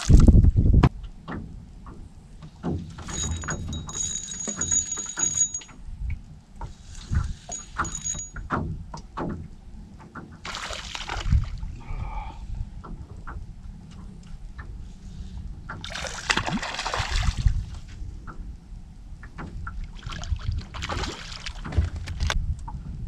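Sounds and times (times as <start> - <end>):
fishing reel whine: 3.1 - 5.7, 7.5 - 8.4
water slapping against boat hull: 8.5 - 11.7, 15.7 - 18.5, 19.2 - 22.8
water splash: 10.4 - 11.7, 15.8 - 17.7, 20.0 - 22.0.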